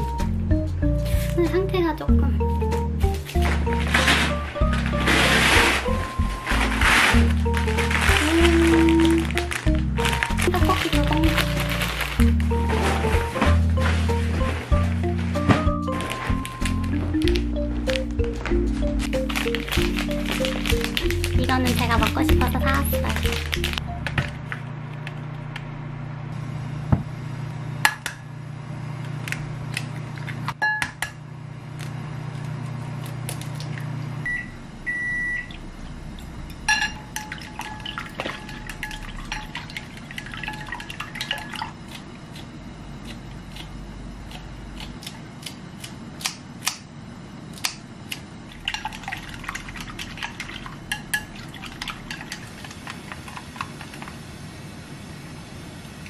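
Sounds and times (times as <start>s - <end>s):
steady low hum: 0.0s - 56.0s
short electronic beep: 34.2s - 35.5s.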